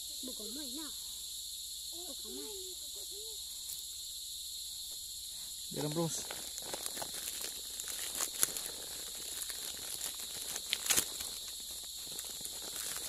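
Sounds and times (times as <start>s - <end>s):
crickets chirping: 0.0s - 13.0s
dry twigs and leaves rustling: 5.7s - 13.0s.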